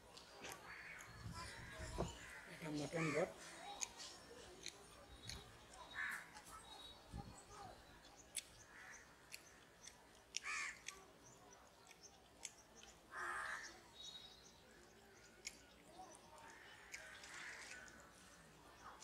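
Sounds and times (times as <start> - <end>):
crow cawing: 10.4 - 10.9, 13.1 - 13.7.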